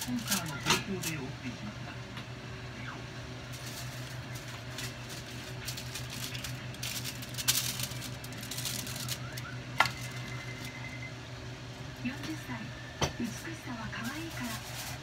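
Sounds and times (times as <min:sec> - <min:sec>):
aluminium foil crinkling: 0:00.0 - 0:01.3, 0:03.5 - 0:10.9, 0:13.8 - 0:15.0.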